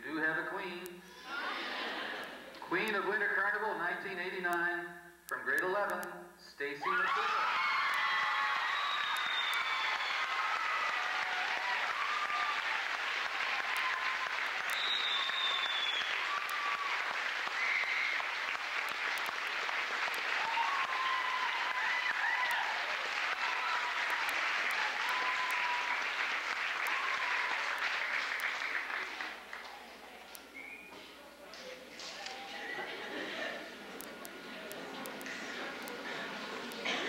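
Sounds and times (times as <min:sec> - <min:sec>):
crowd applauding: 0:07.0 - 0:30.8
scattered voices: 0:29.6 - 0:37.0.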